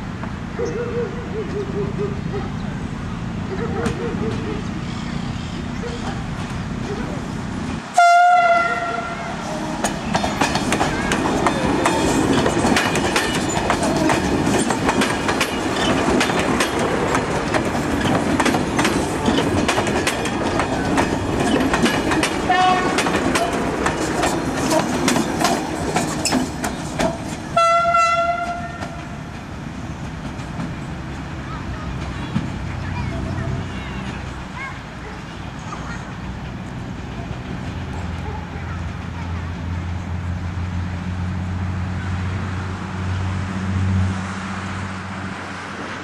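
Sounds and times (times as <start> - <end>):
train passing rumble: 0.0 - 46.0
train horn blast: 7.9 - 10.0, 22.5 - 23.7, 27.5 - 29.2
wheels clicking over rail joints: 9.6 - 39.4.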